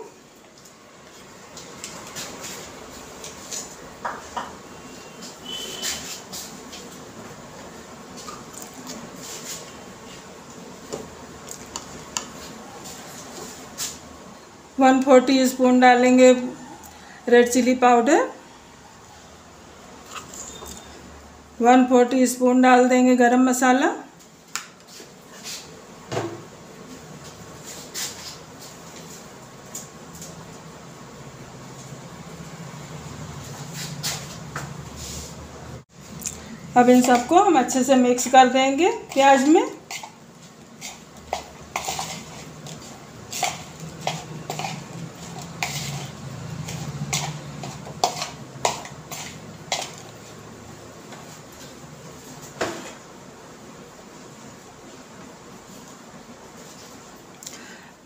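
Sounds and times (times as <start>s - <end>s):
spoon scraping a bowl: 37.0s - 37.7s, 38.9s - 40.2s, 40.8s - 50.2s.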